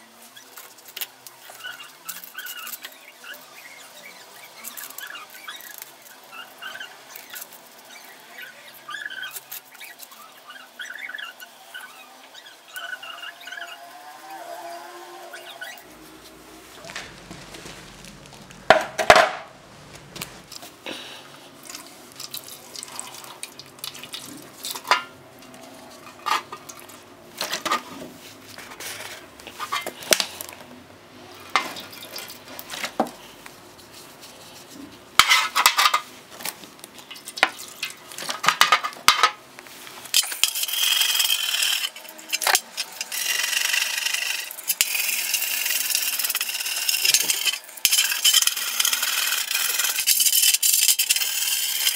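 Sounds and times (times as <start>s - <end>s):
wire brush scrubbing metal: 40.1s - 51.9s.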